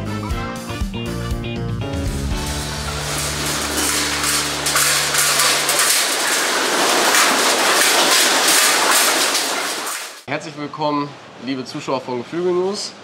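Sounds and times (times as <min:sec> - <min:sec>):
intro music: 0:01.7 - 0:07.7
wire crates clattering: 0:02.4 - 0:10.2.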